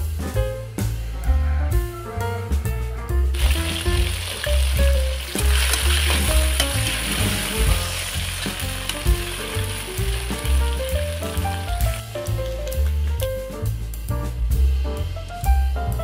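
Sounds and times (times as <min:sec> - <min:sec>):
background music with strong bass: 0:00.0 - 0:16.0
fish sizzling in hot oil: 0:03.3 - 0:13.2.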